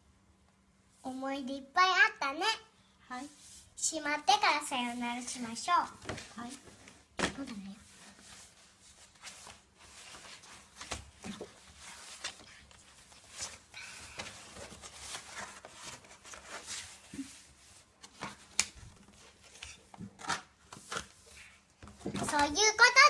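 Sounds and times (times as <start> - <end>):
paper rustling: 4.7 - 22.9.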